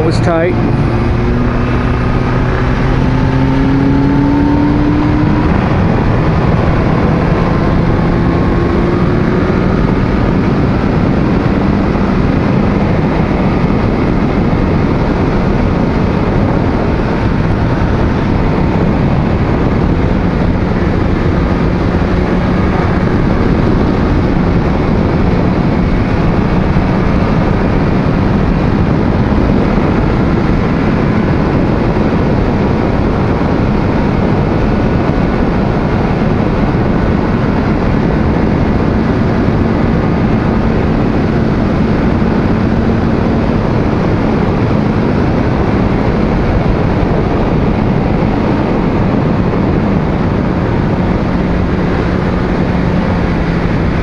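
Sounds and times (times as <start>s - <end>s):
motorcycle engine revving: 0.0s - 54.0s
wind rush on microphone: 0.0s - 54.0s.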